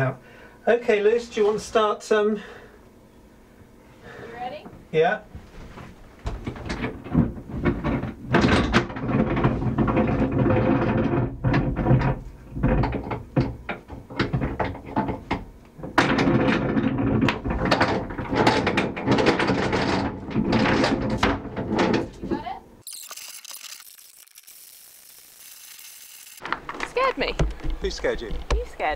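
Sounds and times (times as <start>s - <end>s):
anchor rope rubbing and scraping: 8.9s - 12.9s.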